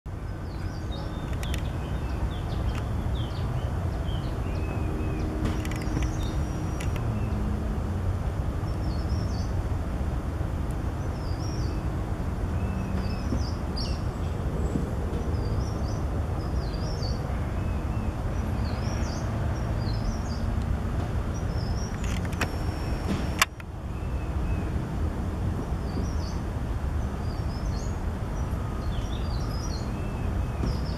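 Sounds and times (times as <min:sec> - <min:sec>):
distant city traffic rumble: 0:00.1 - 0:30.9
sharp click: 0:21.8 - 0:23.7.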